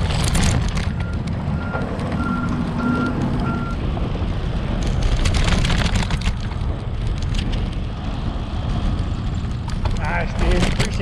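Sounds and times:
wind: 0:00.0 - 0:11.0
repeated electronic beep: 0:00.9 - 0:03.8
crackly rattling: 0:04.0 - 0:11.0.

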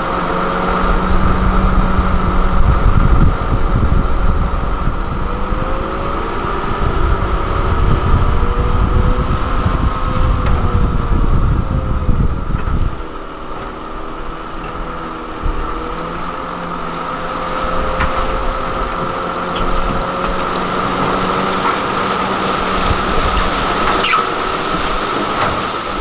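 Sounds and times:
diesel truck engine running: 0:00.0 - 0:26.0
hydraulic hoist whine: 0:00.0 - 0:26.0.

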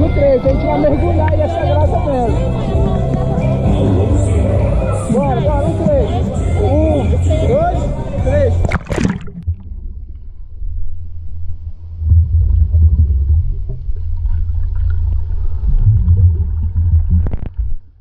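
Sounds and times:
underwater rumble of water: 0:08.4 - 0:18.0.

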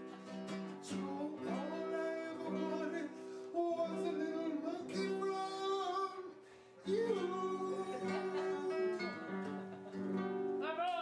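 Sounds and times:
acoustic guitar: 0:00.0 - 0:11.0
person singing: 0:00.9 - 0:09.7.

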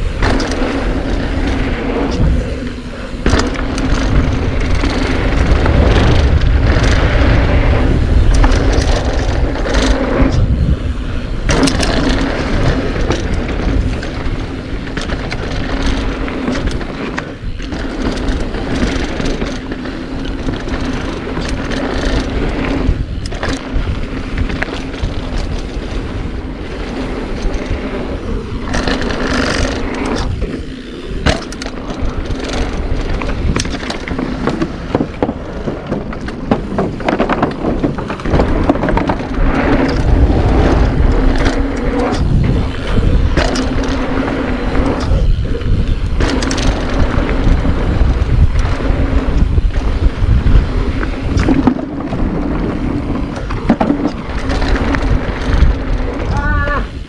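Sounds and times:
bike rattling over bumps: 0:00.0 - 0:57.0
bike tyres rolling on dirt: 0:00.0 - 0:57.0
wind buffeting microphone: 0:00.0 - 0:57.0.

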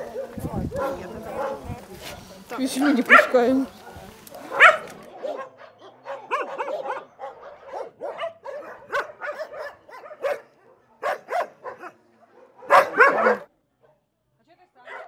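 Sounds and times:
dogs barking: 0:00.0 - 0:13.5.

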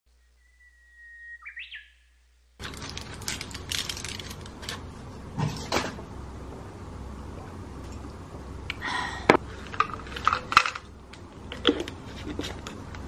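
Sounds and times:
bird-like chirp and warble: 0:00.1 - 0:02.2
clicks and handling noises: 0:02.6 - 0:06.0.

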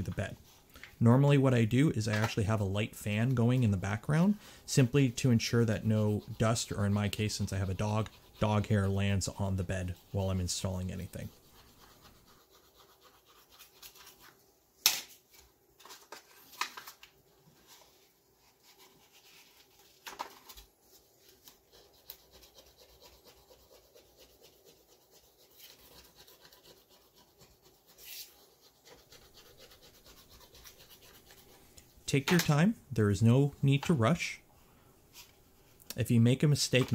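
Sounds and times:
gloved hands rubbing sheet: 0:02.2 - 0:14.4, 0:20.8 - 0:32.6.

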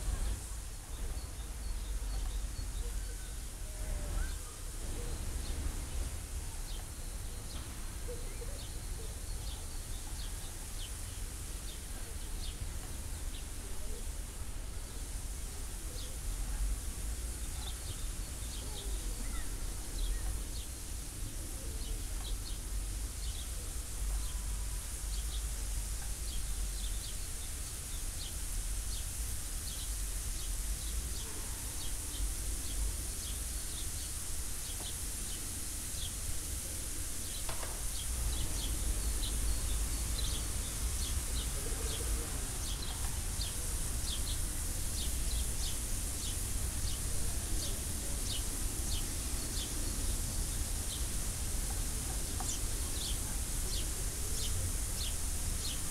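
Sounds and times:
vegetables sizzling in oil: 0:22.1 - 0:55.9.

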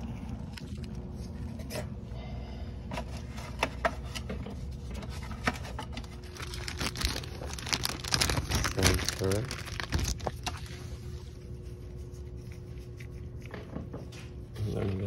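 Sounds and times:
rustling and crinkling: 0:00.0 - 0:02.0, 0:02.9 - 0:15.0
low background rumble: 0:06.0 - 0:13.5.

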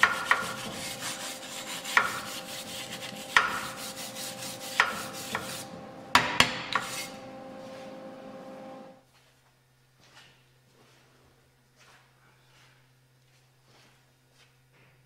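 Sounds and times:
wire brush scraping steel: 0:00.0 - 0:05.8, 0:06.6 - 0:08.0
steady hum: 0:00.0 - 0:09.0.

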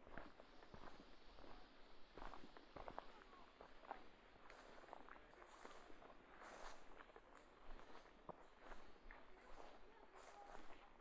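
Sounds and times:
faint scuffing footsteps: 0:03.9 - 0:10.9.

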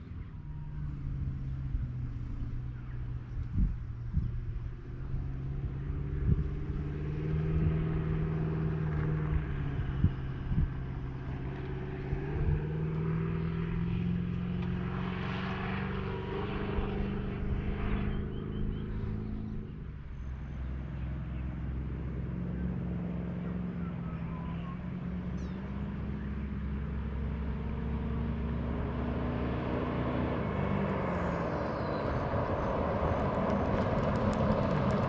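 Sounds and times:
truck engine pulling away: 0:00.0 - 0:35.0.

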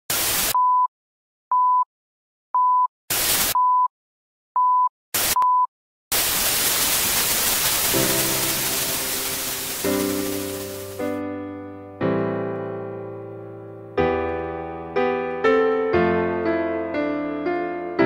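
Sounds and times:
short steady beep: 0:01.5 - 0:01.9, 0:02.6 - 0:02.9, 0:03.5 - 0:03.9, 0:04.6 - 0:05.7
tv static hiss: 0:06.2 - 0:11.0.

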